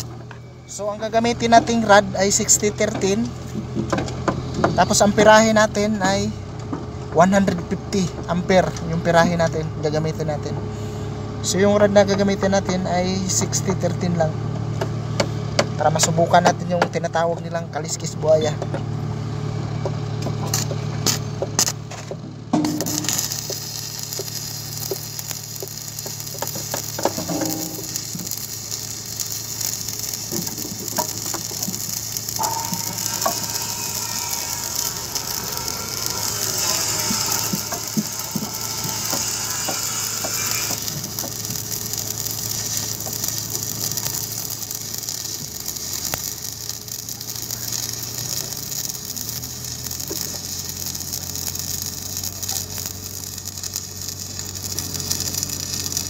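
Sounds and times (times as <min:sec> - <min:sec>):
welding arc crackling: 0:00.0 - 0:06.2, 0:18.8 - 0:56.0
steady low hum: 0:18.9 - 0:46.6.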